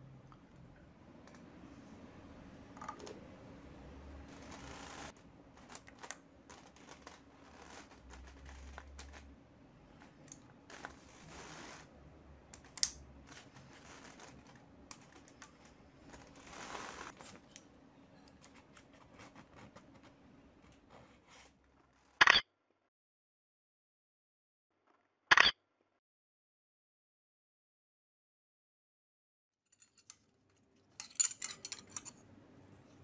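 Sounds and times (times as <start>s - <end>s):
soft rustles: 13.2s - 17.5s.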